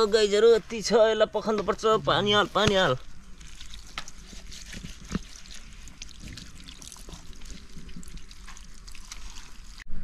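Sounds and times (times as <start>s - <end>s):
hands rinsing meat in water: 2.5s - 9.8s
water pouring into metal wok: 5.4s - 9.8s.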